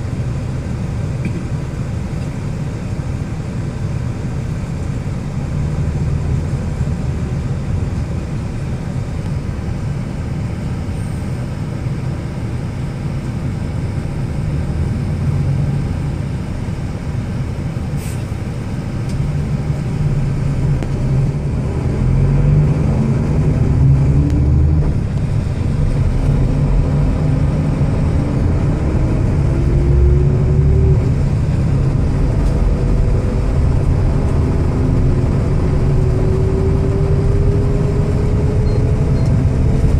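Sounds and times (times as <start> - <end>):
road noise inside car: 0.0 - 39.9
car engine accelerating: 19.1 - 39.9.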